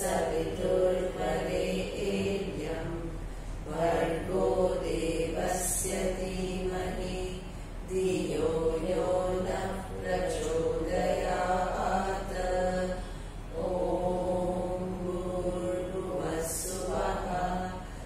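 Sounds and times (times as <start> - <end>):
woman chanting: 0.0 - 18.0.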